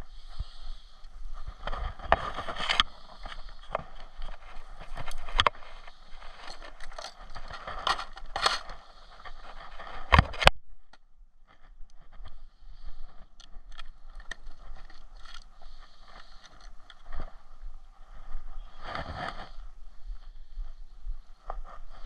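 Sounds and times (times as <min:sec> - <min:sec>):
rustling handling noise: 0:01.1 - 0:10.5, 0:13.0 - 0:19.7
plastic tackle box clicks and rattles: 0:06.4 - 0:08.8.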